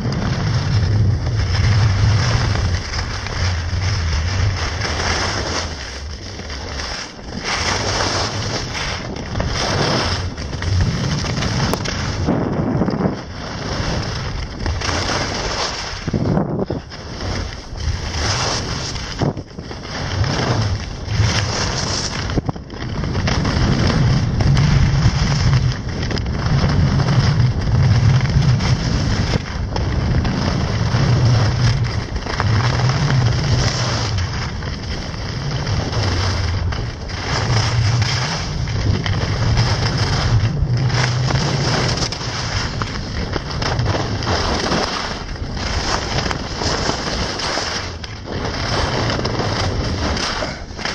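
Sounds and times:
wind buffeting microphone: 0:00.0 - 0:50.9
skis hissing over snow: 0:01.4 - 0:06.0, 0:06.6 - 0:10.2, 0:14.8 - 0:19.3, 0:19.9 - 0:22.3, 0:43.9 - 0:50.9.

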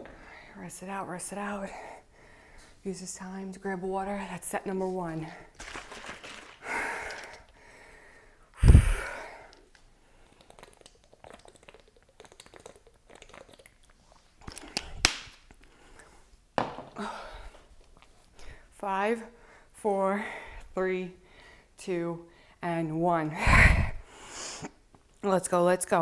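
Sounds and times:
plastic bottle crinkling: 0:05.5 - 0:07.6
person drinking from bottle: 0:08.6 - 0:15.0.

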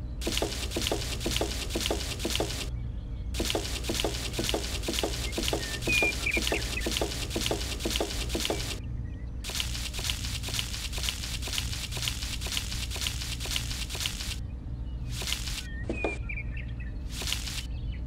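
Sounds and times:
bird chirp: 0:00.0 - 0:18.0
steady low hum: 0:00.0 - 0:18.0
rhythmic clicking: 0:00.2 - 0:02.7, 0:03.4 - 0:08.8.

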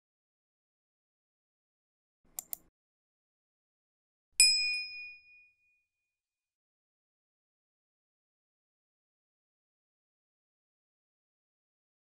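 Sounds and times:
quick clicks: 0:02.3 - 0:02.7
high metallic ding: 0:04.4 - 0:05.8.

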